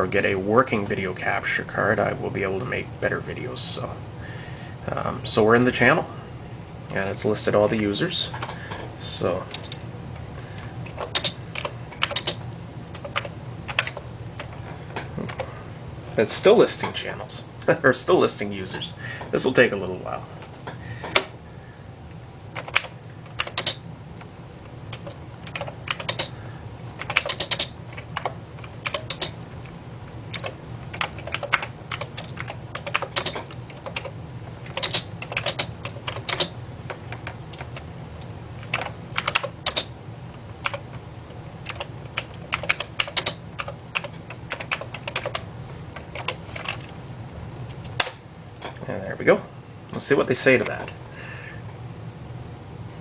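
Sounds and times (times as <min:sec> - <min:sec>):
faint low hum: 0:00.0 - 0:53.0
keyboard key clicks: 0:10.9 - 0:12.4, 0:24.9 - 0:26.3, 0:27.0 - 0:29.3.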